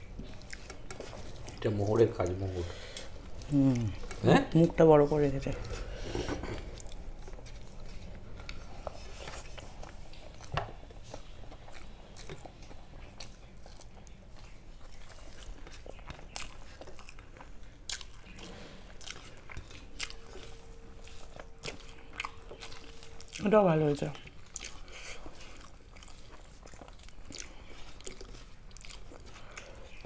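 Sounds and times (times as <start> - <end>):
person chewing food: 0.0 - 30.0.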